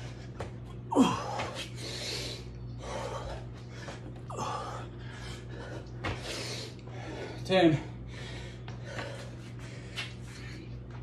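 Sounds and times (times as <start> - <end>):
man grunting: 0.9 - 1.6
man breathing hard: 0.9 - 10.8.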